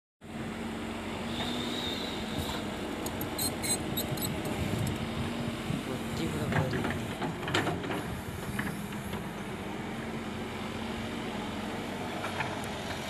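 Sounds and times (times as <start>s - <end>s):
excavator diesel engine rumbling: 0.3s - 13.0s
short high squeaks: 3.2s - 4.4s.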